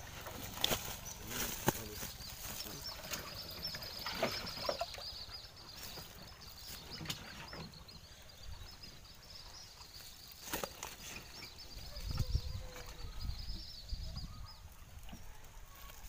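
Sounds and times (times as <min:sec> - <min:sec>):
steady high chirping: 0:00.0 - 0:14.7.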